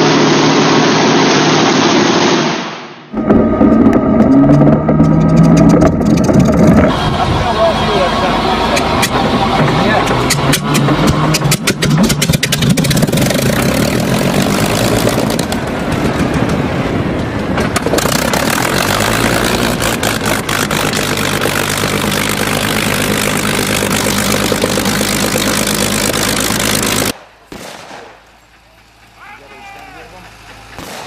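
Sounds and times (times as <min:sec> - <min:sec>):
aircraft engine idling: 0:03.1 - 0:27.2, 0:28.1 - 0:31.0
engine crackle of pops: 0:10.0 - 0:29.2, 0:29.8 - 0:31.0.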